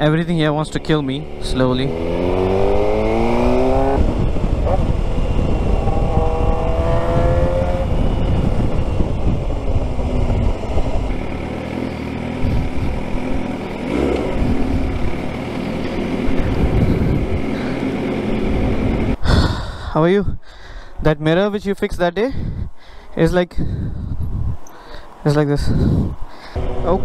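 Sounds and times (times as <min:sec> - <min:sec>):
motorcycle engine accelerating: 0:00.0 - 0:19.2, 0:25.8 - 0:27.0.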